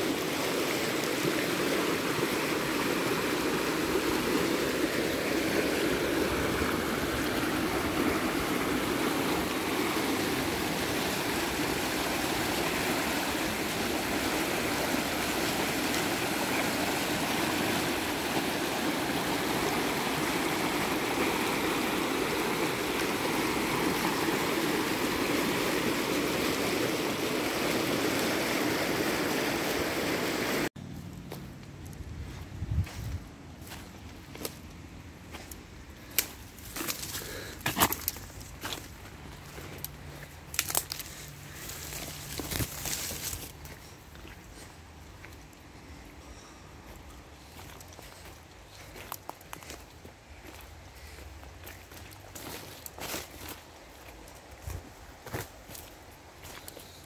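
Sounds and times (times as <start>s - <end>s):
creek rushing over rocks: 0.0s - 30.8s.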